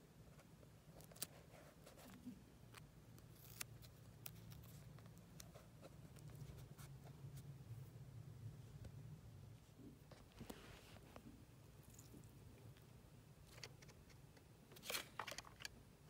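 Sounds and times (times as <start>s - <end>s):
low steady hum: 0.0s - 16.0s
paper clicks and rustles: 14.7s - 15.8s.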